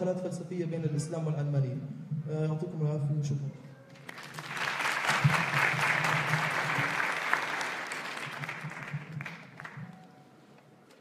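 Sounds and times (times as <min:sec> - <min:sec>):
audience applauding: 0:04.0 - 0:10.1.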